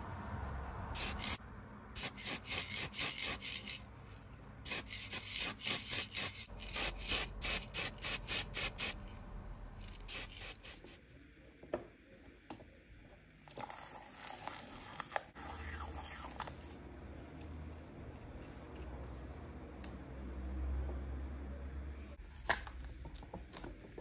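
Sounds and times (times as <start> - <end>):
spray-paint can hissing bursts: 1.0 - 1.4, 2.0 - 3.8, 4.6 - 9.0, 10.1 - 11.0.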